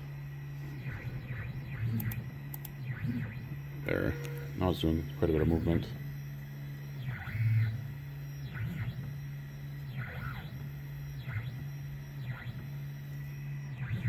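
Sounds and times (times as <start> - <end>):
stepper motors humming: 0.0 - 14.0.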